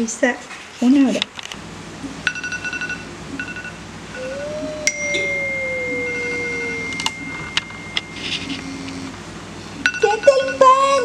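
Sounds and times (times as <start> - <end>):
long steady high tone: 3.5 - 9.2
lower tone sliding down: 4.2 - 8.2.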